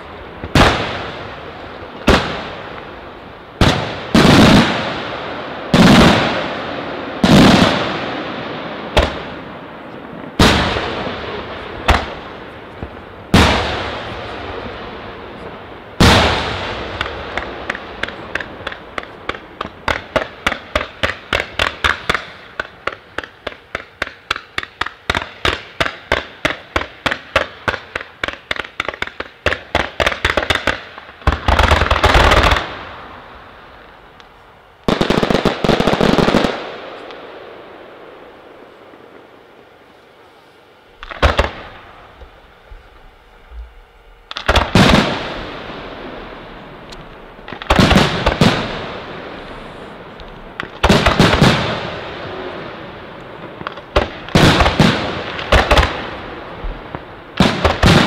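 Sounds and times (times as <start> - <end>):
fireworks exploding: 0.0 - 39.9, 40.9 - 43.1, 44.3 - 58.0.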